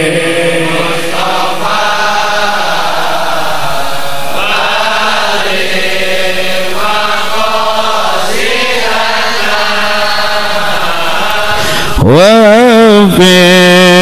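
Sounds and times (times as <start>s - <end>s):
man chanting into a microphone: 0.0s - 1.1s, 11.3s - 14.0s.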